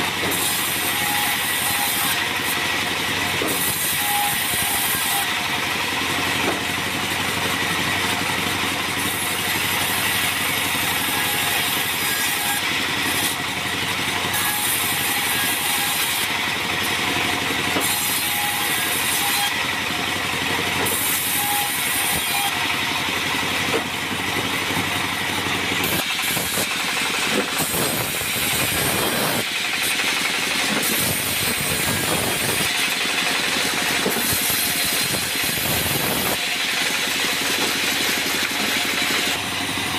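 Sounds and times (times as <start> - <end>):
bandsaw cutting wood: 0.0 - 39.9.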